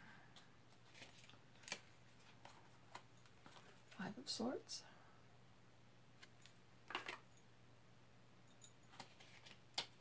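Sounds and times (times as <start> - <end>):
low steady hum: 0.0 - 10.0
card rustling: 0.7 - 4.0, 8.9 - 10.0.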